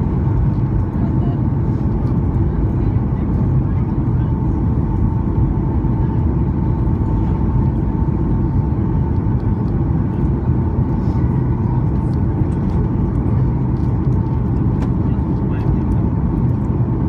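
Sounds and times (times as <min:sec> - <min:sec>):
airliner engines and rushing air: 0:00.0 - 0:17.0.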